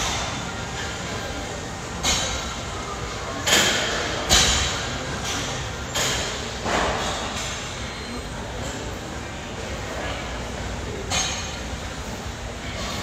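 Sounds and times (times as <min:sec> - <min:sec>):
gym background noise: 0:00.0 - 0:13.0
shoulder press machine clanks: 0:02.0 - 0:02.6, 0:03.3 - 0:07.9, 0:11.0 - 0:11.8.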